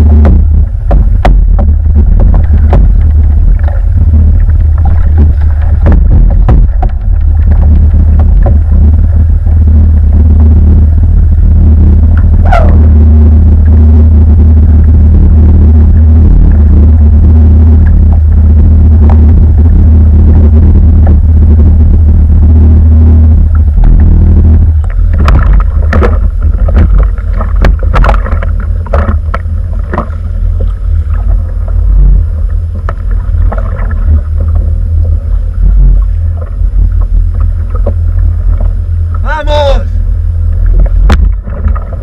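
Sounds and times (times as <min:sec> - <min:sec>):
wind buffeting camera: 0:00.0 - 0:39.3, 0:40.0 - 0:42.0
choppy water: 0:00.0 - 0:42.0
fish knocking on kayak deck: 0:04.8 - 0:08.7.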